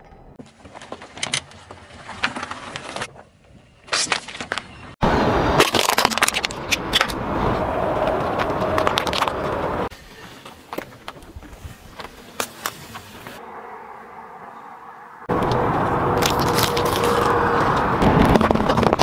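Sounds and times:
tyre crushing objects on asphalt: 16.1s - 19.0s.

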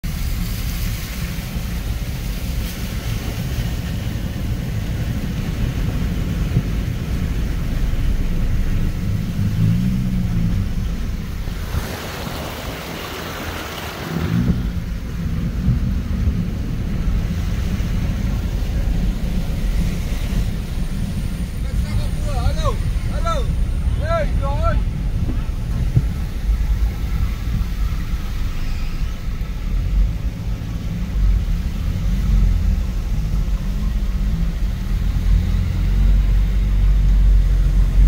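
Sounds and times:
car rumbling through floodwater: 0.0s - 38.0s
wind noise on microphone: 0.0s - 38.0s.

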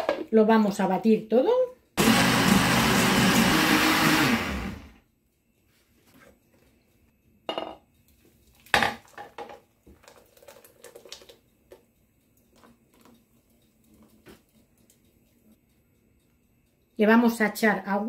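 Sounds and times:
thick liquid pouring: 9.9s - 11.4s.

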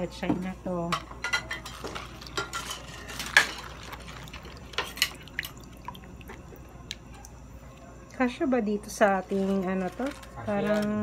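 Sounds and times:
pots and dishes clinking: 0.8s - 5.5s.

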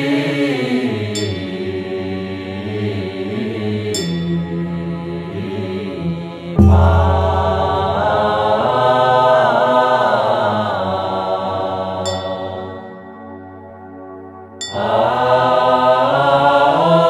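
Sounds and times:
monks chanting a hymn: 0.0s - 12.0s, 14.8s - 17.0s
bright metallic ring: 6.6s - 9.2s
loud strike with deep ringing: 6.6s - 9.7s.

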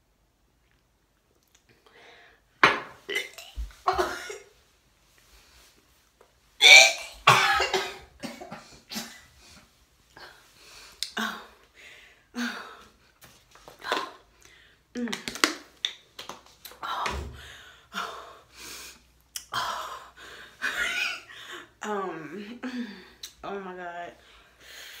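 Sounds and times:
woman coughing and gagging: 3.1s - 4.5s, 6.6s - 9.2s.

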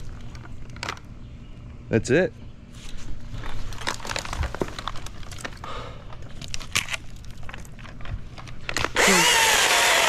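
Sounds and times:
crinkly rustling: 0.0s - 1.1s, 2.8s - 9.0s
chainsaw running loud: 9.0s - 10.0s.

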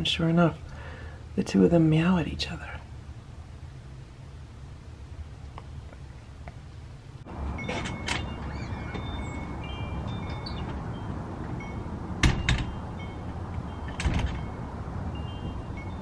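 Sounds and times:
low steady rumble: 0.0s - 16.0s
wind chimes ringing: 7.3s - 16.0s
sharp knocks: 12.2s - 12.8s.

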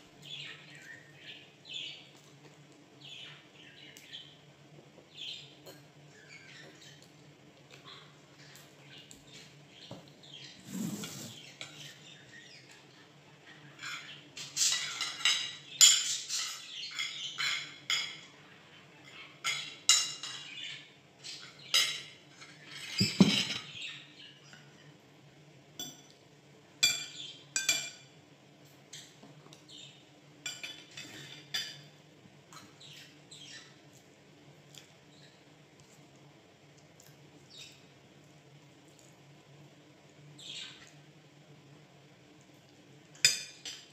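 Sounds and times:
cutlery clinking on plates: 13.8s - 18.3s, 19.4s - 20.6s, 21.6s - 23.9s, 25.8s - 26.2s, 26.8s - 28.1s, 30.4s - 31.9s, 43.2s - 43.9s.

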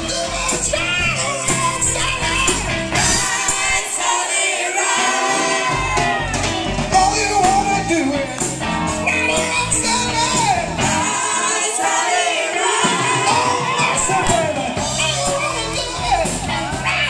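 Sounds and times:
deep bass: 0.0s - 3.3s, 5.8s - 11.0s, 14.8s - 17.0s
live rock band playing: 0.0s - 4.1s, 4.8s - 11.5s, 12.8s - 17.0s
man and woman singing: 0.0s - 17.0s.

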